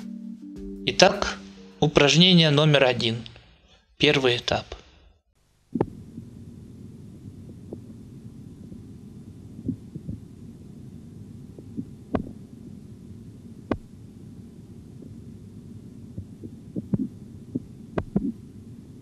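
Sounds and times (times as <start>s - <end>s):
stethoscope low rumble: 5.4s - 19.0s.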